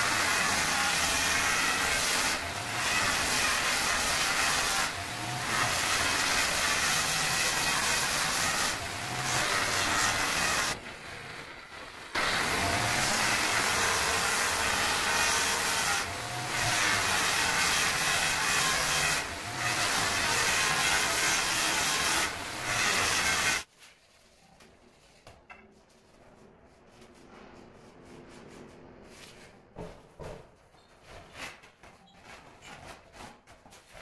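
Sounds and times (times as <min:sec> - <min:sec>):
angle grinder cutting stone: 0:00.0 - 0:10.8, 0:12.2 - 0:23.7.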